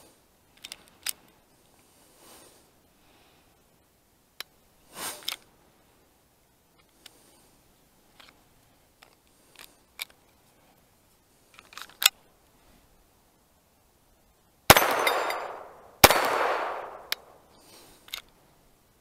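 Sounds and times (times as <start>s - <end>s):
gun handling clicks: 0.5s - 1.2s, 11.5s - 12.2s, 14.7s - 17.3s, 18.0s - 18.4s
pistol shots with echo: 14.7s - 17.3s.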